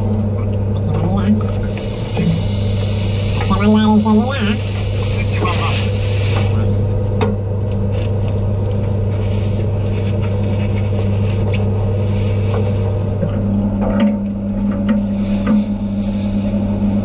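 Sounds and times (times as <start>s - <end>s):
steady tone: 0.0s - 7.6s
low mechanical hum: 0.0s - 17.0s
plastic bags rustling: 2.7s - 6.8s, 7.7s - 13.2s.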